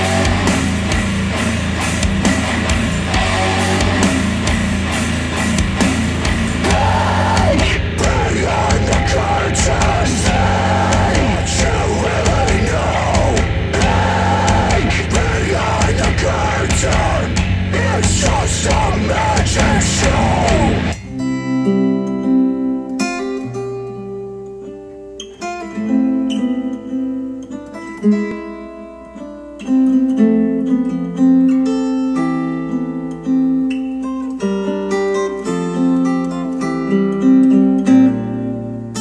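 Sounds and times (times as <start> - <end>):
death metal music: 0.0 - 21.5
solo acoustic guitar: 20.9 - 39.0.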